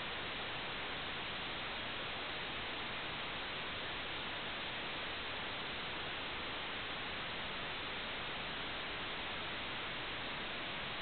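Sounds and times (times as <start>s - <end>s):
static hiss: 0.0s - 11.0s.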